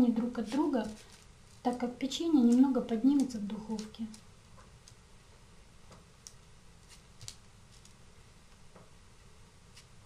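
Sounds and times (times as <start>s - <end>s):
soft ticks and crinkles of paper: 0.1s - 5.0s, 5.9s - 8.8s, 9.7s - 10.0s.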